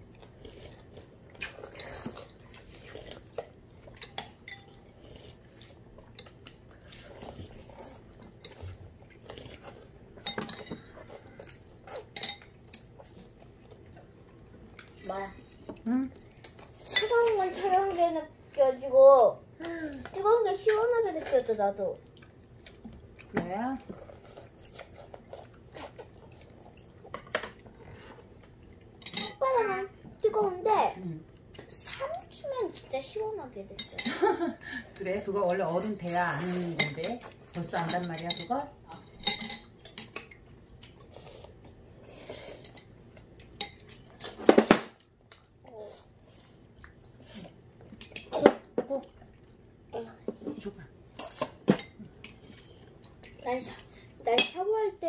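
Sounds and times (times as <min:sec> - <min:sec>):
cutlery clinking on ceramic bowls: 0:10.2 - 0:12.9, 0:29.0 - 0:29.4, 0:37.8 - 0:40.4
child's voice: 0:16.9 - 0:22.0, 0:29.3 - 0:33.8, 0:53.4 - 0:55.0.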